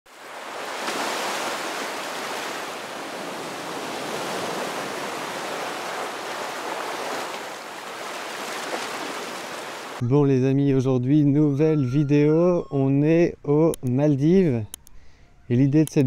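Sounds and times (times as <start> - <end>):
sea waves washing on shore: 0.1 - 10.0.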